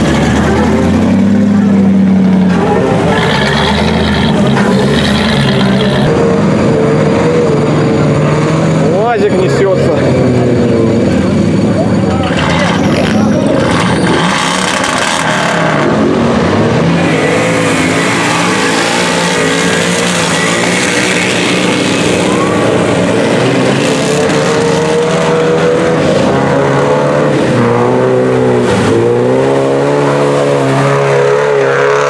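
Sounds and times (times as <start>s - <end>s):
off-road engines revving: 0.0s - 32.0s.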